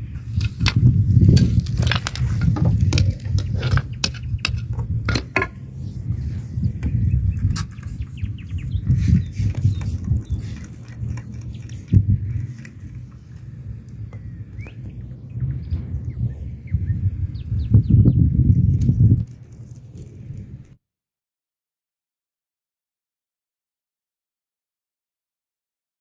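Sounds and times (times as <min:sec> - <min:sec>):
steady low rumble: 0:00.0 - 0:20.8.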